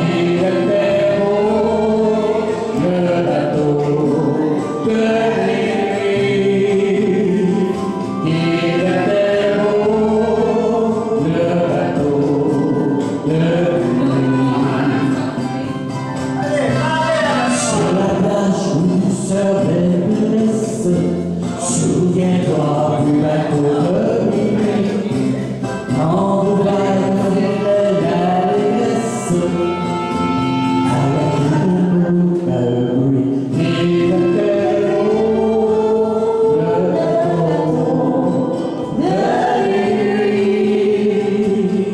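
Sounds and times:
man singing into a microphone: 0.0s - 15.6s, 16.7s - 41.9s
karaoke backing track: 0.0s - 41.9s.

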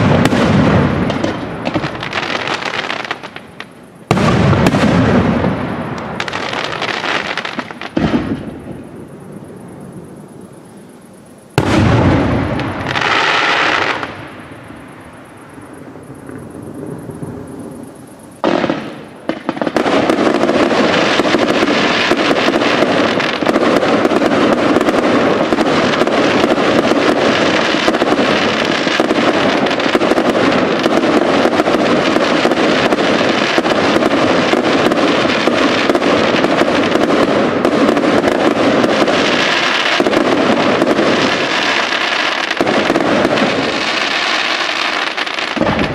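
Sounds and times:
rapid firework crackling: 0.0s - 8.6s, 18.3s - 45.9s.

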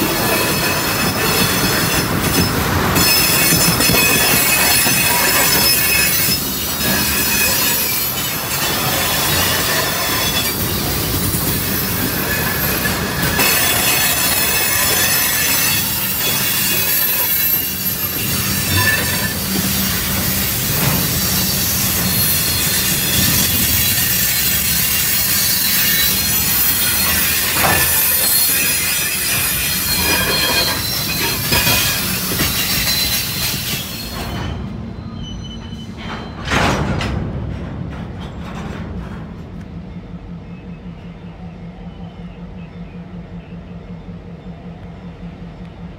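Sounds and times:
steel wheels squealing on rail: 0.0s - 37.2s
freight train rumble: 0.0s - 45.9s.

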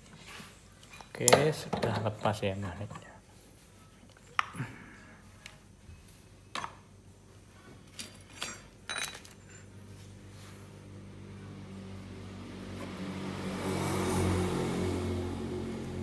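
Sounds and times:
vehicle engine hum: 9.9s - 16.0s.

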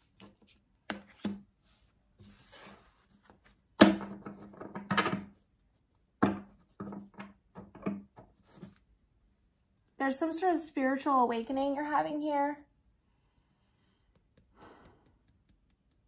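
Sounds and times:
cards shuffled and knocking on desk: 0.0s - 1.5s, 2.2s - 5.4s, 6.2s - 8.9s.

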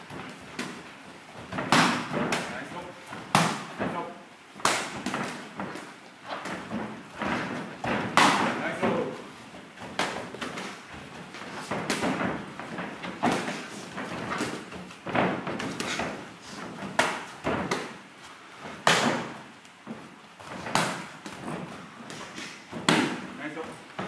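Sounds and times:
gloved punches and kicks landing: 1.4s - 4.0s, 4.6s - 9.1s, 9.8s - 18.0s, 18.7s - 19.4s, 20.5s - 23.4s.

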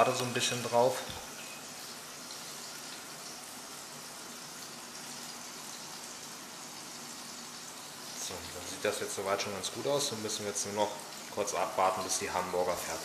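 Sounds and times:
burgers sizzling in a pan: 0.0s - 13.0s.

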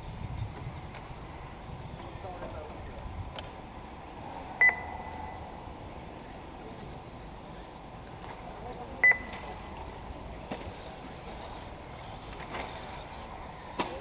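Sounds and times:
loud electronic beep: 4.6s - 5.6s, 9.0s - 9.3s.

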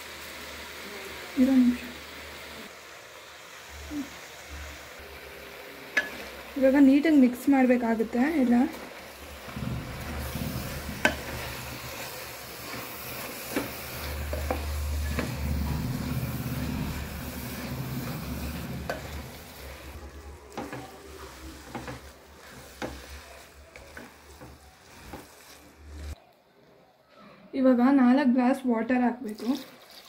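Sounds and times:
food sizzling in pot: 0.0s - 26.2s.

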